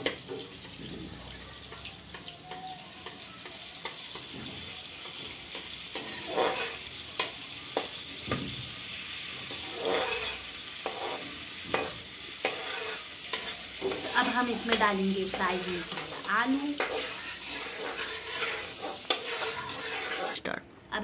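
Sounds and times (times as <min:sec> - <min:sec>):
butter sizzling in a pan: 0:00.0 - 0:20.4
spoon scraping and knocking pan: 0:03.8 - 0:08.7, 0:09.4 - 0:20.4.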